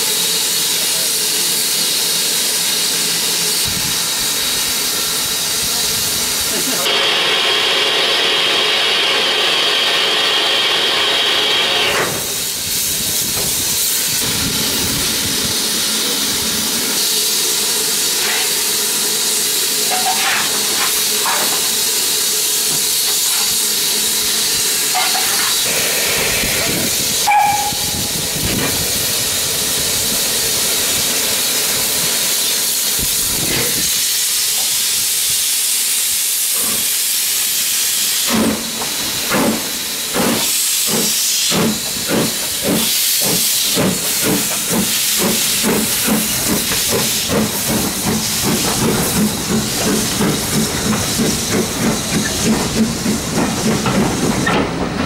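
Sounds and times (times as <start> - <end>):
steam hissing: 0.0 - 55.0.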